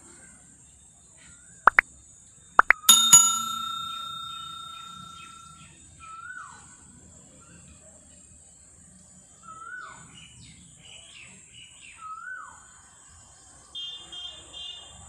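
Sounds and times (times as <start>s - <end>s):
bell ding: 2.6s - 5.5s.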